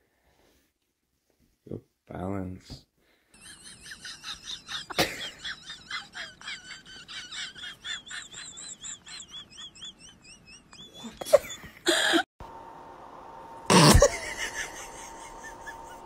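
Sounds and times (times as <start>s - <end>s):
squeaky chirps: 7.8s - 11.7s.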